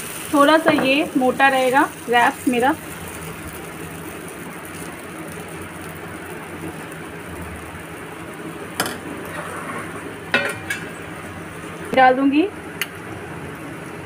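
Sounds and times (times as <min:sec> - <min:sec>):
batter hissing on hot griddle: 0:00.0 - 0:10.3.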